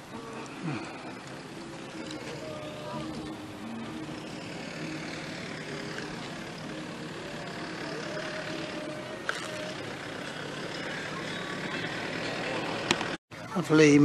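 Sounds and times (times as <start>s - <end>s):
faint distant music: 0.0s - 14.0s
outdoor background noise: 0.0s - 14.0s.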